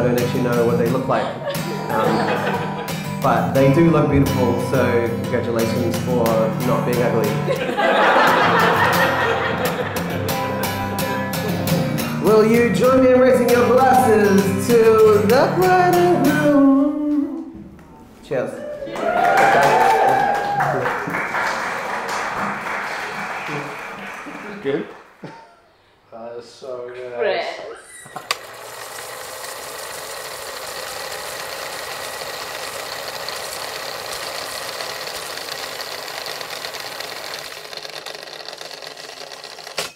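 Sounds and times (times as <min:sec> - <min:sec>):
acoustic guitar strumming: 0:00.0 - 0:07.6, 0:08.3 - 0:17.0
film projector whirring rattle: 0:07.5 - 0:11.8, 0:28.0 - 0:39.9
man singing: 0:12.2 - 0:17.5.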